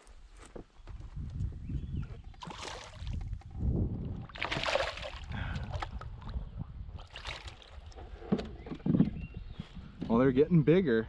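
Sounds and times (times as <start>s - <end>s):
water splashing: 2.4s - 3.2s, 4.3s - 6.4s, 7.0s - 8.0s.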